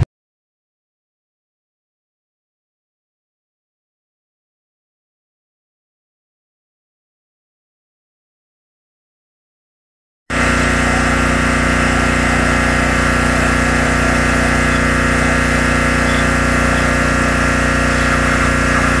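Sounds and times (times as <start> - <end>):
pressure washer motor drone: 10.3 - 19.0
water jet hissing: 10.3 - 19.0.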